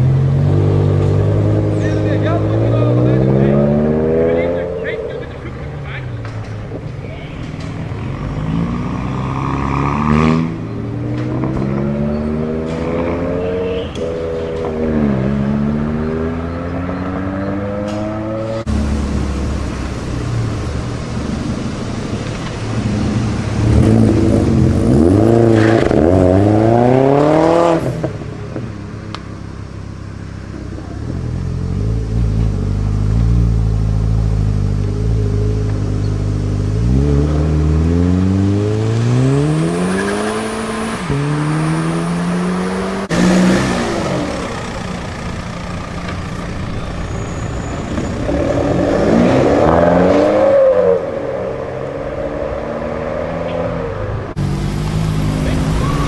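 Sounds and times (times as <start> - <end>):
car engines revving and accelerating: 0.0 - 56.0
engine holding low steady note: 43.9 - 48.0.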